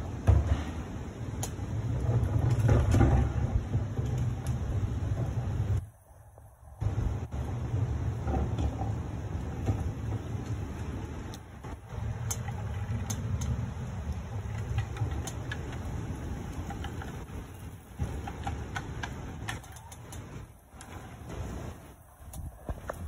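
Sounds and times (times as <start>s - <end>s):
wind buffeting microphone: 0.0s - 23.0s
light clicks and rattles: 8.1s - 23.0s.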